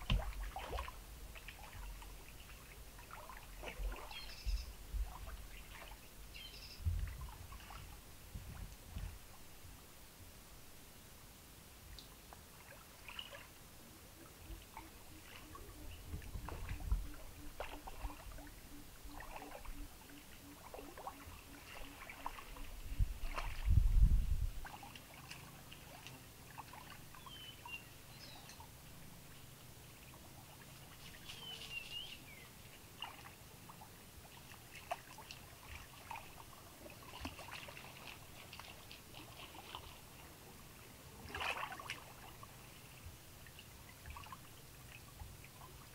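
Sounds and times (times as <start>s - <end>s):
water splash: 0.0s - 6.0s, 14.7s - 27.4s, 34.4s - 40.1s, 41.2s - 42.6s
water sloshing and trickling: 0.0s - 9.6s, 11.9s - 45.9s.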